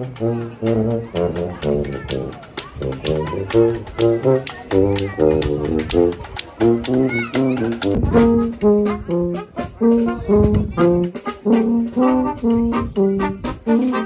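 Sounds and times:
brass band playing jazzy tune: 0:00.0 - 0:14.0
steady drum beat: 0:00.0 - 0:14.0.

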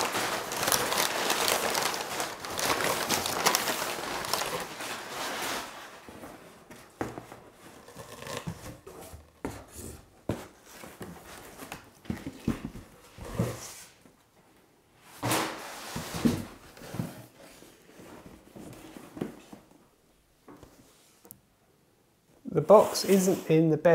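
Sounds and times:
packing paper rustling: 0:00.0 - 0:09.3.

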